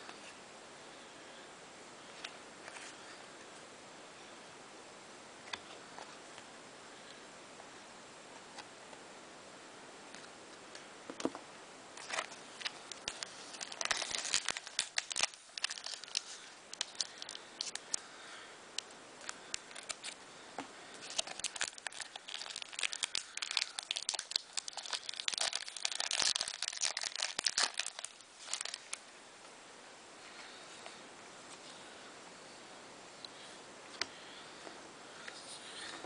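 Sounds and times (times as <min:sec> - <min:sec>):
wrapper crinkling and tearing: 0:12.0 - 0:18.0, 0:19.2 - 0:20.2, 0:21.0 - 0:29.0.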